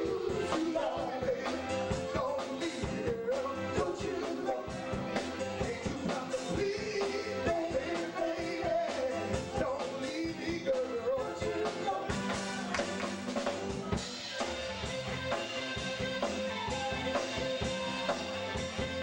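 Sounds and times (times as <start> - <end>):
man singing into a microphone: 0.0 - 12.2
drums: 0.0 - 19.0
live band music: 0.0 - 19.0.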